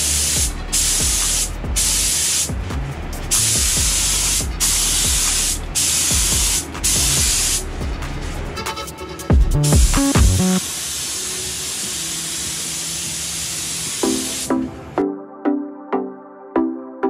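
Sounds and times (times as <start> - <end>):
spray gun hissing: 0.0 - 8.4, 10.5 - 14.6.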